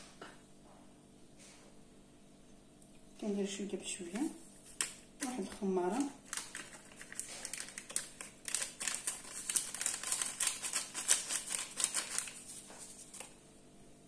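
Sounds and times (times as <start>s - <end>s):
sachet crinkly rustling: 4.5s - 13.5s.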